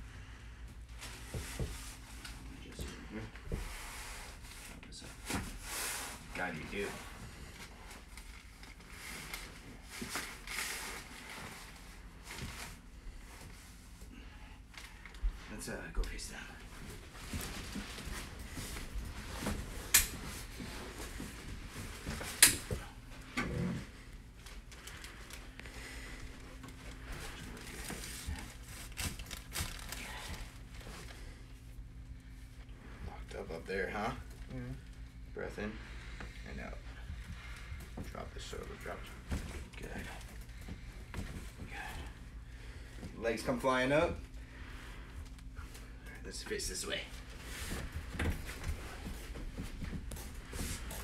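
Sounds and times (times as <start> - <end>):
steady low hum: 0.0 - 51.0
clothing rustling: 0.9 - 34.0, 46.8 - 51.0
fabric and paper crinkling: 24.0 - 31.4.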